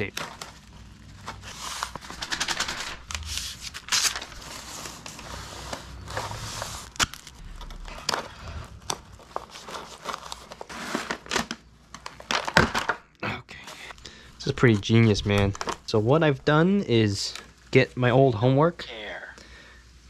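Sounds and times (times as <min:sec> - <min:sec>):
paper crinkling: 0:00.0 - 0:12.9, 0:14.4 - 0:16.0
duct tape ripping: 0:06.6 - 0:08.2.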